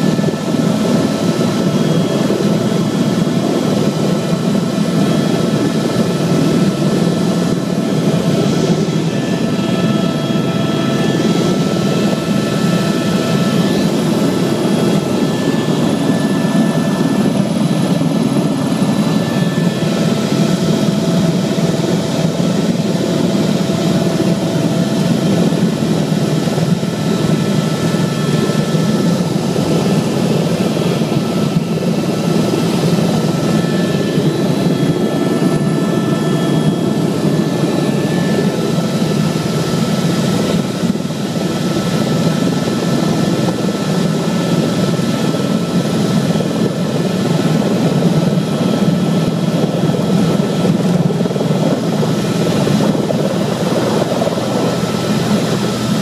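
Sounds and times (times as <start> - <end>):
helicopter engine and rotor drone: 0.0 - 56.0.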